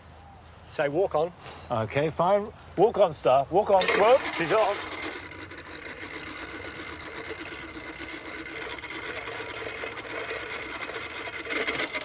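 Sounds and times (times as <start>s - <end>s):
lawnmower blades clattering: 3.7s - 12.0s.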